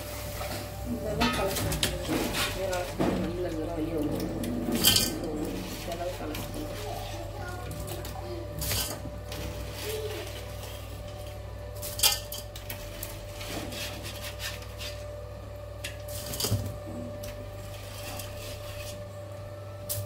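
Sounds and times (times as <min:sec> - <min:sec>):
crab shells clattering in metal bowl: 0:04.0 - 0:06.5, 0:11.8 - 0:12.9.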